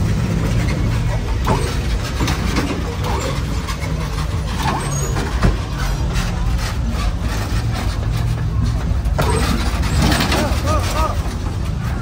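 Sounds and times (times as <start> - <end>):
street noise: 0.0 - 12.0
vehicle engine running: 0.0 - 12.0.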